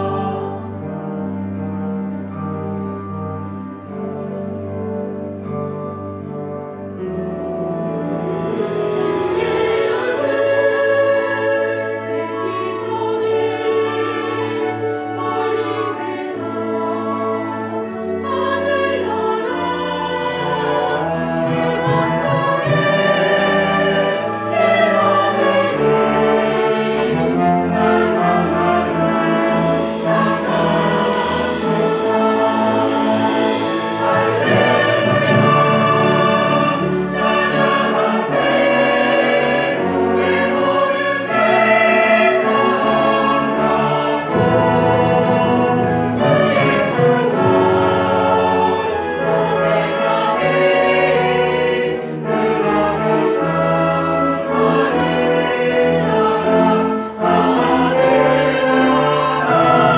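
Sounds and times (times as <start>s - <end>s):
mixed choir singing a hymn: 0.0s - 2.1s, 7.0s - 59.9s
church orchestra playing: 0.0s - 59.9s
percussion strokes: 7.4s - 14.5s, 19.1s - 51.7s.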